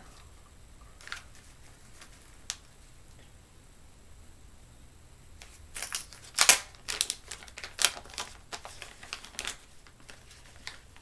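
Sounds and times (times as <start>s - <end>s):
plastic bag crinkling: 1.0s - 2.7s, 5.4s - 11.0s.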